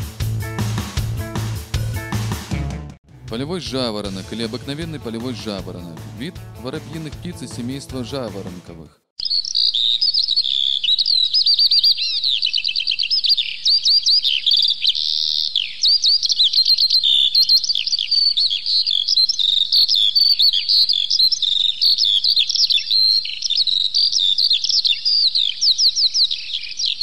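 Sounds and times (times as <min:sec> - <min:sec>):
skylark singing: 0:09.2 - 0:27.0.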